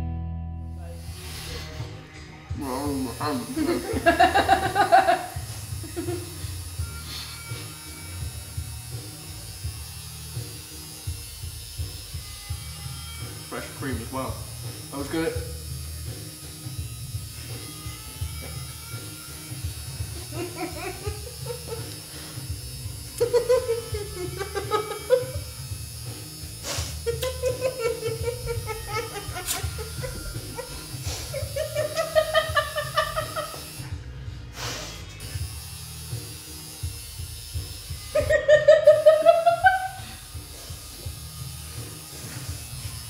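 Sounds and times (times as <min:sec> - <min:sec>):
laughter: 0:03.4 - 0:06.4, 0:20.1 - 0:22.0, 0:23.2 - 0:25.4, 0:27.0 - 0:33.8, 0:38.2 - 0:40.2.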